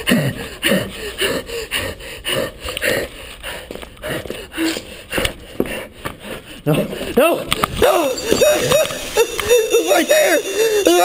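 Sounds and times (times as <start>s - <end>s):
person breathing hard: 0.0s - 8.4s, 9.0s - 11.0s.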